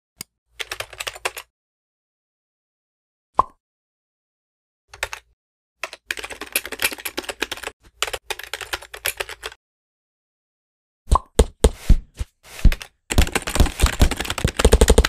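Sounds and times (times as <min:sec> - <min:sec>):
computer keyboard typing: 0:00.6 - 0:01.5, 0:04.9 - 0:09.6, 0:12.7 - 0:15.0.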